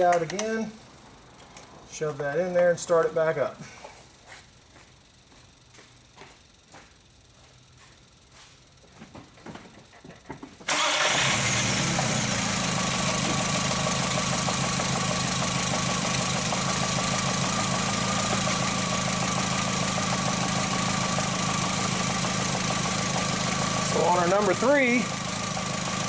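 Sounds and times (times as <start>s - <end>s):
faint steady whine: 0.0s - 10.7s
car engine idling: 10.7s - 26.0s.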